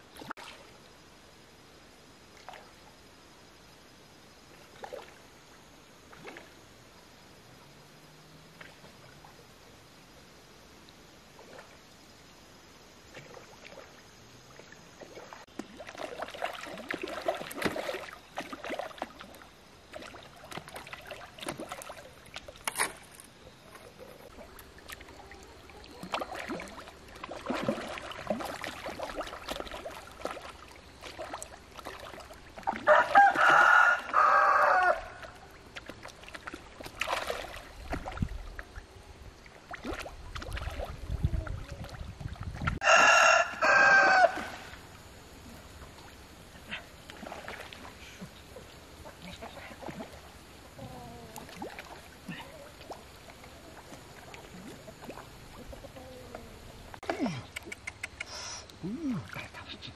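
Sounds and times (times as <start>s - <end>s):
small splashes in pond: 0.0s - 59.9s
rooster crowing: 32.9s - 35.2s, 42.8s - 44.7s.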